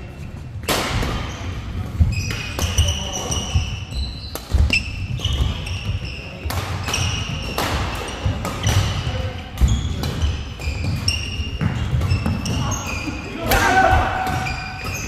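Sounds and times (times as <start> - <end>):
sneakers squeaking on court: 1.1 - 13.4, 14.1 - 15.0
racket hitting shuttlecock: 6.4 - 12.5.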